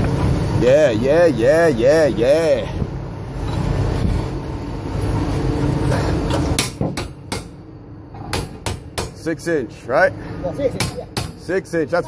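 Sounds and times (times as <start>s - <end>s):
low machine rumble: 0.0s - 8.2s.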